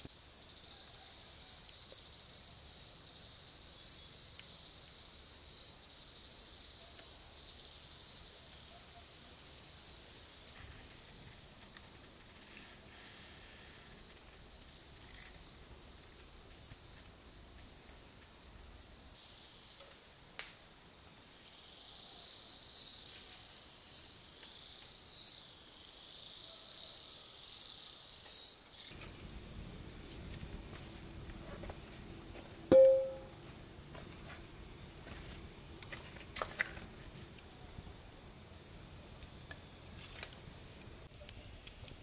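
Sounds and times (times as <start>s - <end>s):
insects chirring: 0.0s - 19.9s, 21.3s - 31.8s.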